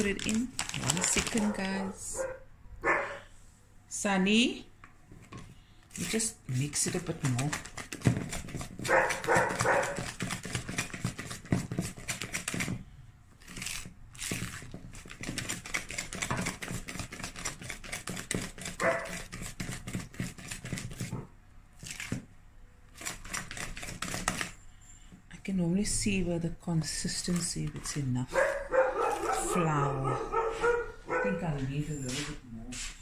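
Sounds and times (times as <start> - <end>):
cake batter squelching in bowl: 5.9 - 21.2.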